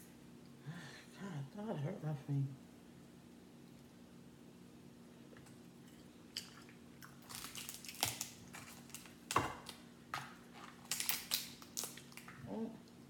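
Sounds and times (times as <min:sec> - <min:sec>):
crab shells cracking and crunching: 0:06.4 - 0:12.4.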